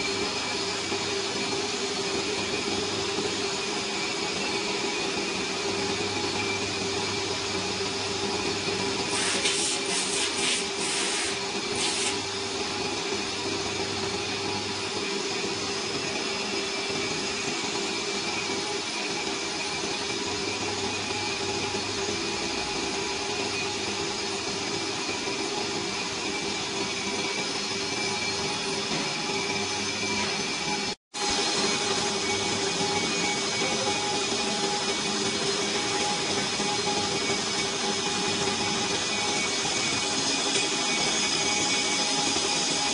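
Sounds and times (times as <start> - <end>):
lathe droning: 0.0 - 42.9
short hissing scrapes: 9.1 - 12.2.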